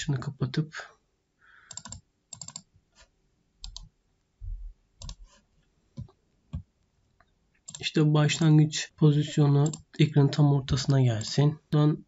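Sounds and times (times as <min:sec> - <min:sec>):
computer mouse clicking: 0:01.7 - 0:02.7, 0:03.6 - 0:03.9, 0:05.0 - 0:05.3, 0:07.6 - 0:07.9, 0:09.6 - 0:09.9.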